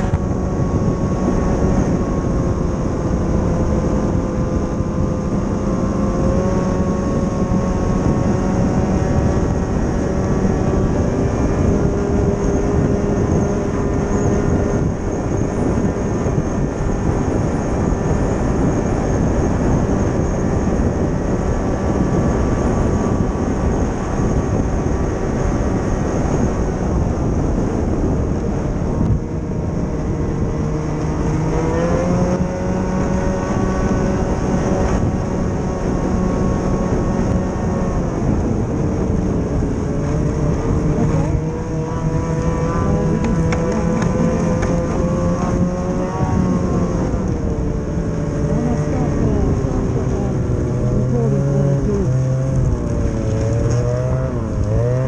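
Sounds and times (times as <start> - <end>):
snowmobile engine running: 0.0 - 55.0
wind noise: 0.0 - 55.0.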